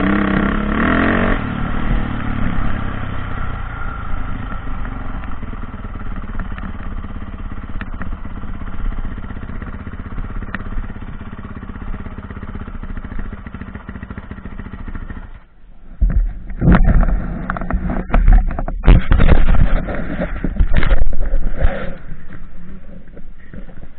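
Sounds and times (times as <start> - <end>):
dirt bike engine running: 0.0 - 23.9
camera handling knocks and rubbing: 16.0 - 21.4.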